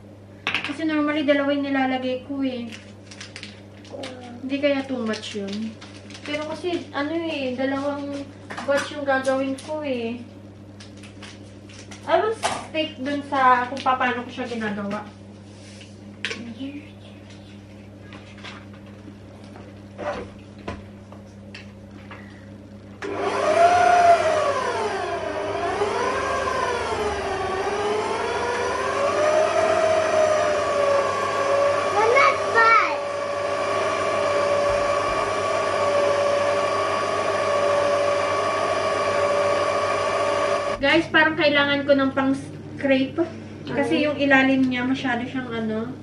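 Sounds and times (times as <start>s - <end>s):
stand mixer motor whining: 23.0s - 40.8s
mixer head knocking: 31.8s - 40.8s.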